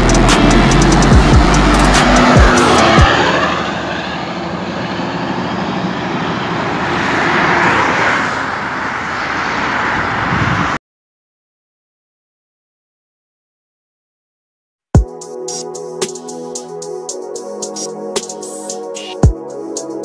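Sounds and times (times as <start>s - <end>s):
highway traffic passing: 0.0s - 10.8s, 15.1s - 20.0s
truck passing: 0.0s - 10.8s.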